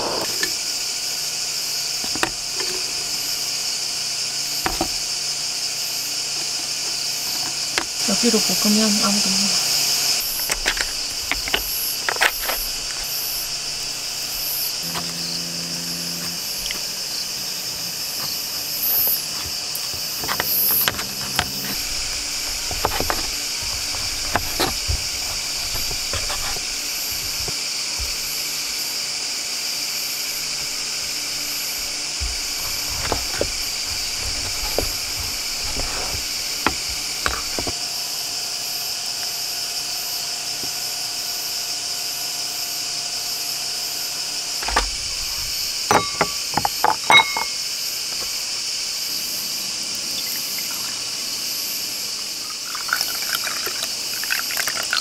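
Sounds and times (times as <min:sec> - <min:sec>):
crickets chirring: 0:00.0 - 0:55.0
knife cutting on wooden tray: 0:19.4 - 0:28.4, 0:31.6 - 0:37.8.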